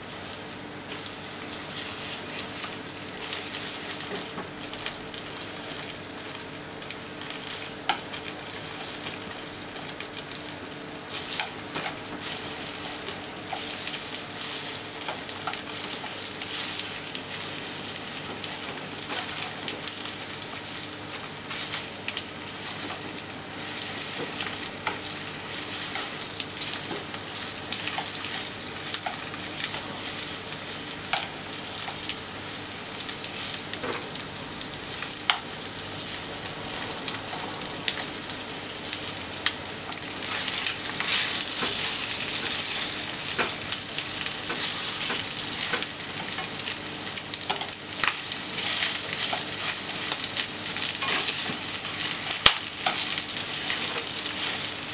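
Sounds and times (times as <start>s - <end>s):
chicken sizzling in frying pan: 0.0s - 54.9s.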